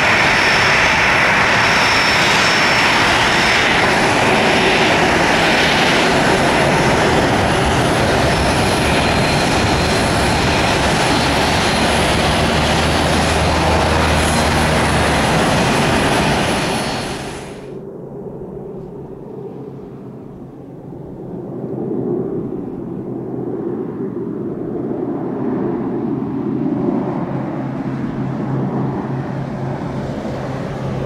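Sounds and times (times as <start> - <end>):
high thin engine whine: 0.0 - 17.8
jet engines at taxi power: 0.0 - 31.0.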